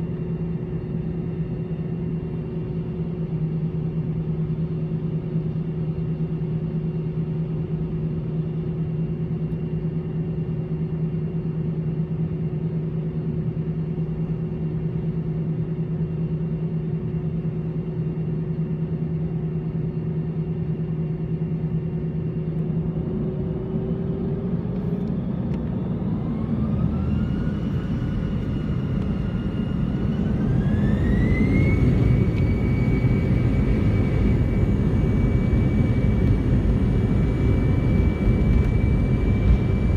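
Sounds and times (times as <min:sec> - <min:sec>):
jet engines spooling up: 0:22.9 - 0:39.9.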